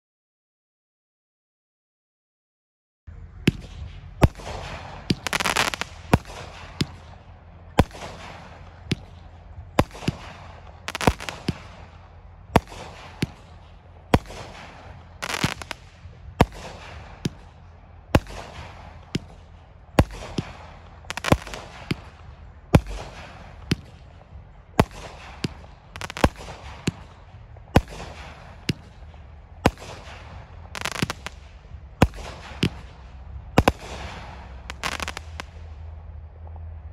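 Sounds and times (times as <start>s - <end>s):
firework reports: 3.1s - 36.9s
firework shells hissing: 14.2s - 15.8s, 33.6s - 35.5s.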